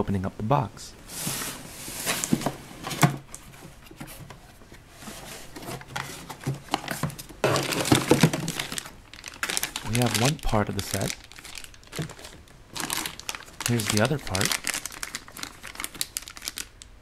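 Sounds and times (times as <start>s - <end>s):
plastic bags crinkling: 5.1s - 16.9s.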